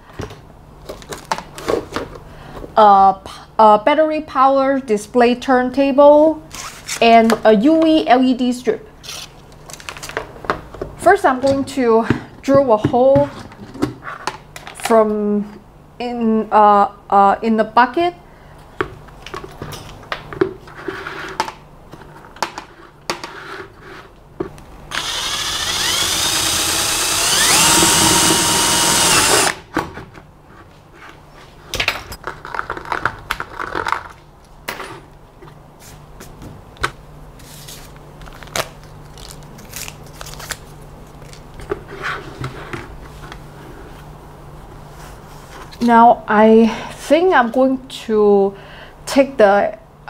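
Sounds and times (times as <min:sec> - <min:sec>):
electric drill whining: 0:24.9 - 0:29.6.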